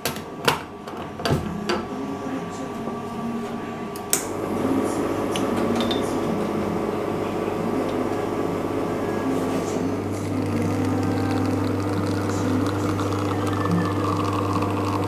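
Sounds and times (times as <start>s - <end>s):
espresso machine pump humming: 4.1s - 15.0s.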